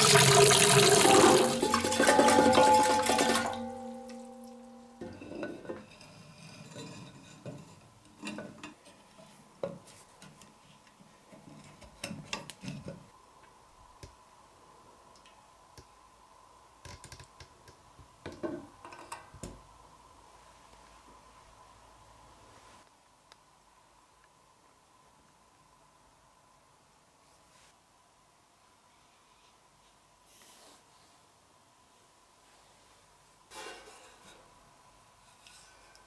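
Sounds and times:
water filling a glass: 0.0s - 3.8s.

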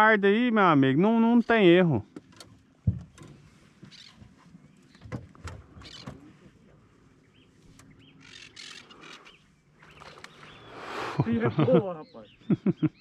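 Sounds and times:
faint birds chirping: 0.0s - 13.0s
light clicks and knocks: 2.1s - 6.3s.

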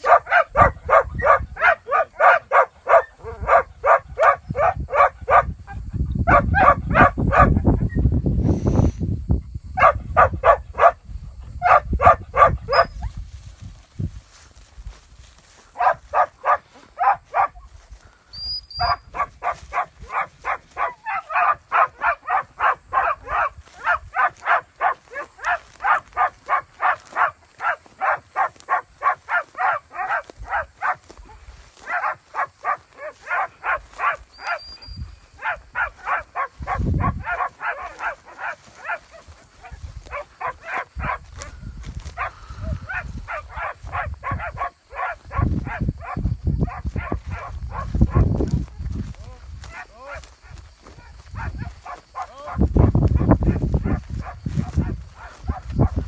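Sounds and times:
low wind or handling rumble: 3.2s - 15.8s, 36.5s - 37.5s, 40.9s - 44.6s, 45.2s - 56.0s.

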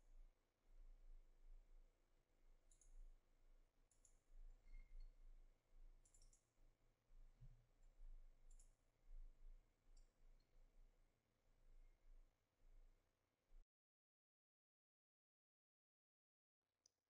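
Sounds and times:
computer mouse clicks: 2.7s - 3.0s, 6.0s - 6.5s, 8.5s - 8.8s.

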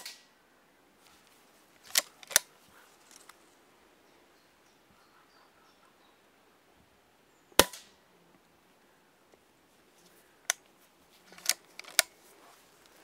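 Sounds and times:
air rifle cracks: 1.9s - 2.5s
rifle reloading click: 1.9s - 2.5s.

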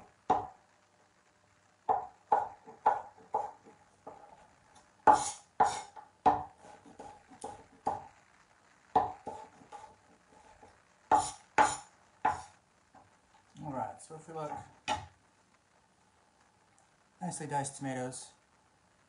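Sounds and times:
knife chopping on cutting board: 1.9s - 4.2s, 5.1s - 8.0s, 9.0s - 9.9s, 11.1s - 12.5s.

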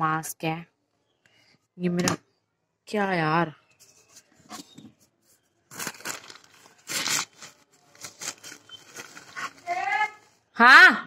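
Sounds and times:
rustling handling noise: 3.7s - 10.5s
person speaking: 6.9s - 10.4s.

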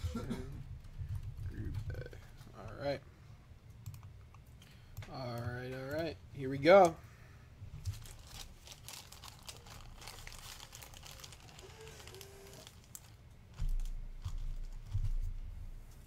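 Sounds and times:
plastic bag crinkling: 7.8s - 15.0s.

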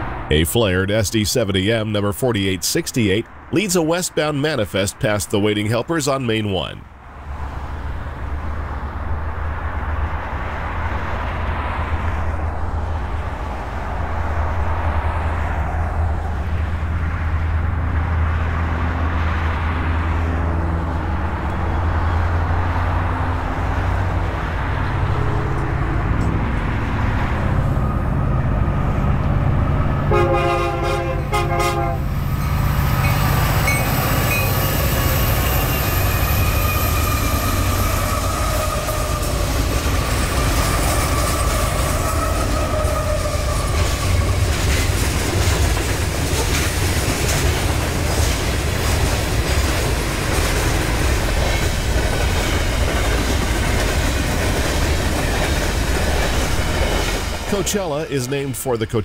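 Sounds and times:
diesel locomotive engine drone: 0.0s - 59.0s
freight cars rumbling: 0.0s - 59.0s
train horn blasts: 30.0s - 32.2s
train wheels clacking on rails: 32.4s - 57.8s.

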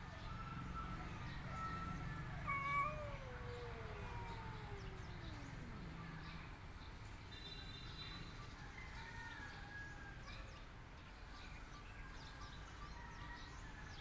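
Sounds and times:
cat yowling: 1.5s - 6.3s.

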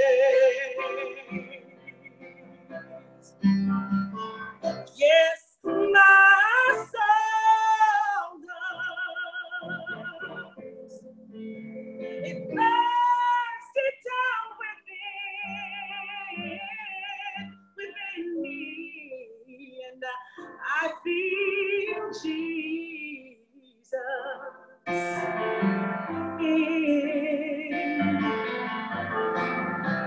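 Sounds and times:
woman singing: 0.0s - 1.8s, 4.9s - 10.6s, 12.2s - 28.5s.

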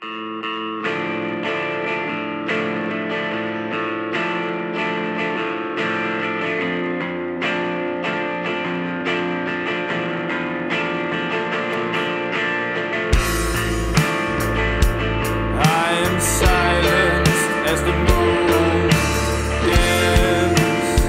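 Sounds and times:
electric guitar ringing chords: 0.0s - 21.0s.

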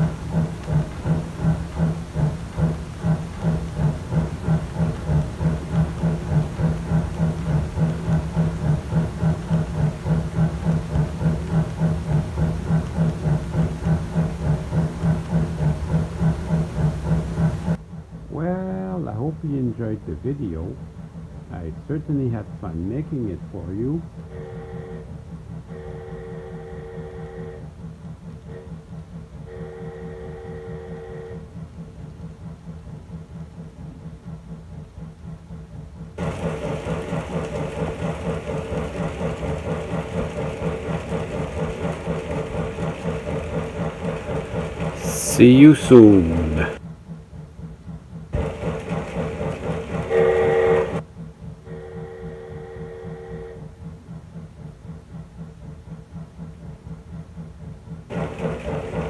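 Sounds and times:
model train wheels clattering: 0.0s - 17.8s, 35.8s - 46.8s, 48.3s - 51.0s, 57.7s - 59.0s
diesel engine throbbing: 36.0s - 47.0s, 48.2s - 51.1s
locomotive horn blast: 50.1s - 51.0s.

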